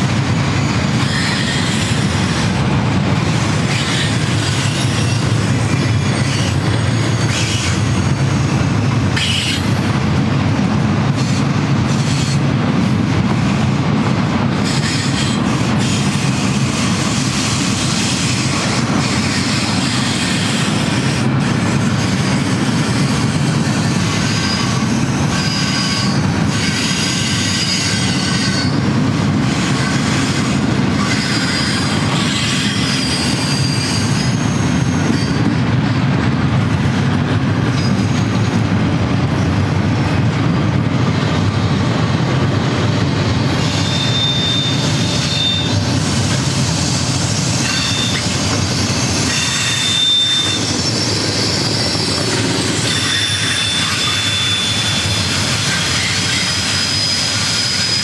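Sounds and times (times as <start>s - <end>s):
train wheels rumbling on rail: 0.0s - 58.0s
high-pitched wheel squeals: 29.7s - 35.5s, 43.6s - 45.8s, 46.8s - 58.0s.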